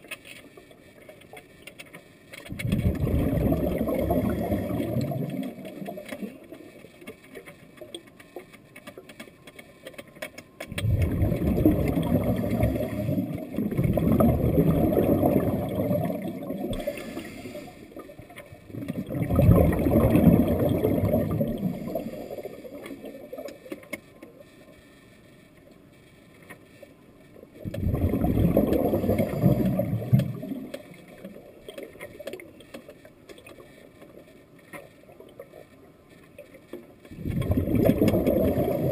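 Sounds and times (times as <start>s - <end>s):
underwater exhaled bubbles: 2.5s - 6.8s, 10.7s - 23.7s, 27.5s - 32.6s, 37.0s - 38.9s.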